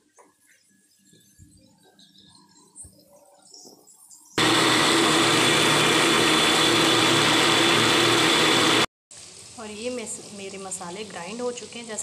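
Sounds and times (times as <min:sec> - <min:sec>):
mixer grinder whining: 0:04.4 - 0:08.9.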